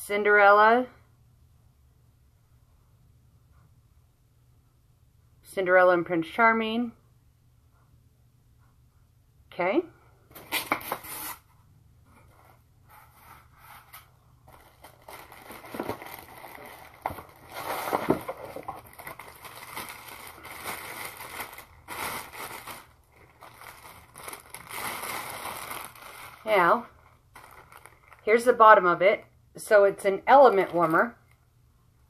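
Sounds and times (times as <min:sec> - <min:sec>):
packaging rustling and crinkling: 0:13.7 - 0:28.5.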